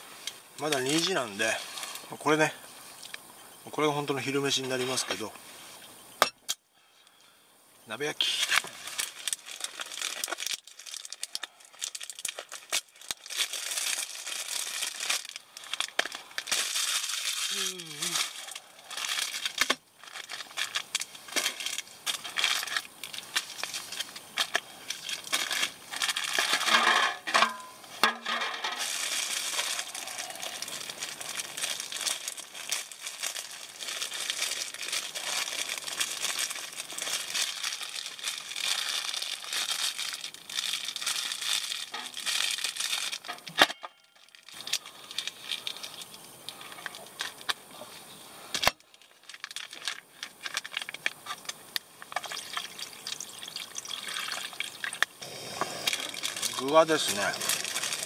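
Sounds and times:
plastic packaging crinkling: 0:08.2 - 0:47.7, 0:48.5 - 0:58.0
liquid pouring onto noodles: 0:52.2 - 0:55.0.

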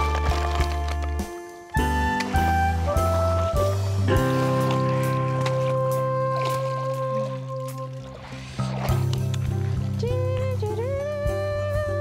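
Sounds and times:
melody of held notes: 0:01.7 - 0:06.6.

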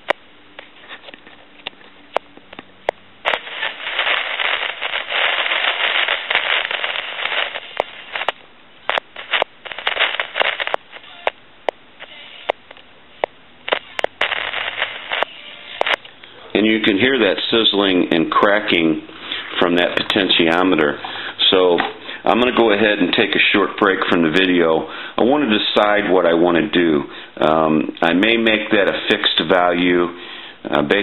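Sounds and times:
crackling static from telephone handset: 0:00.0 - 0:30.1
loud sizzling hiss: 0:03.2 - 0:11.4, 0:13.2 - 0:23.6.

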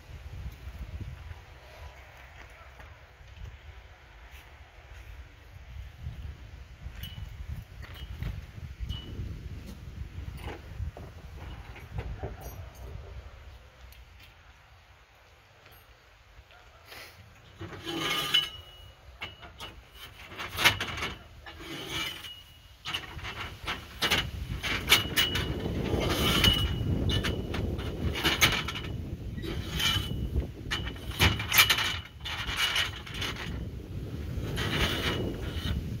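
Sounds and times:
metal tubes clinking: 0:17.5 - 0:33.7.

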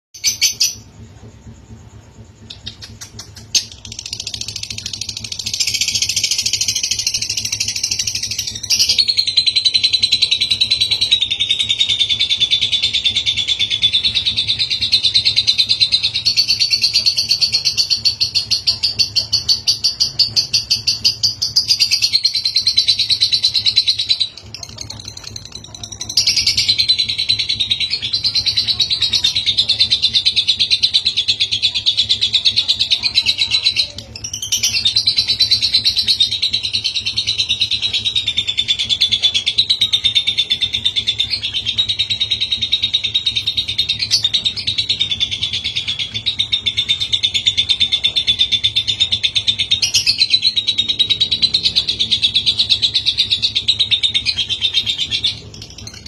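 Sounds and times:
lovebird chattering trill: 0:00.2 - 0:56.0.

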